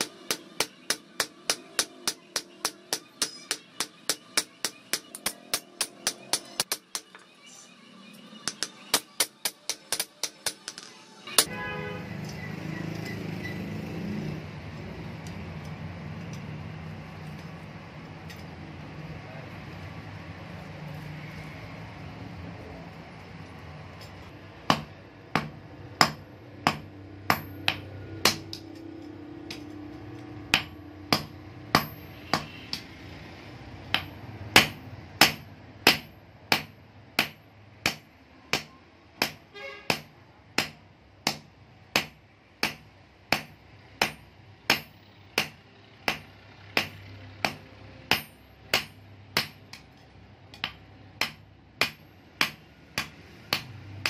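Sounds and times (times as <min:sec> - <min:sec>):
hammer clanking on anvil: 0:00.0 - 0:07.2.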